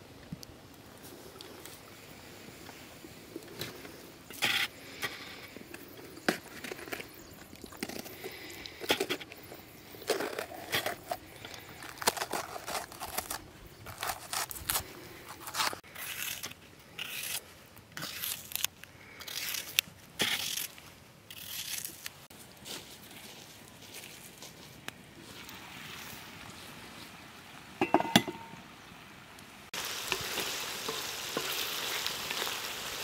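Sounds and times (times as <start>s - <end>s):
food scraping and crunching: 3.3s - 22.3s.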